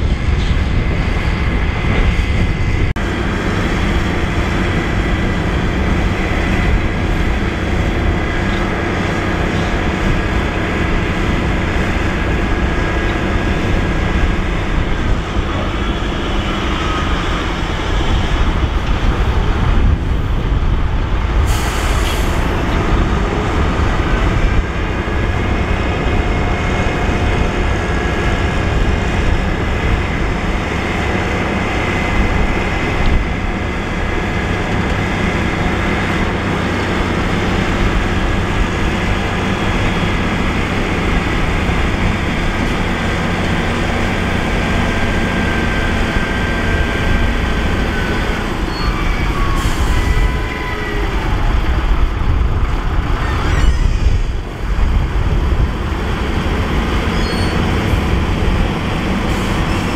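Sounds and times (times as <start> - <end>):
diesel truck engine running: 0.0 - 59.9
hydraulic hoist whine: 21.4 - 59.9.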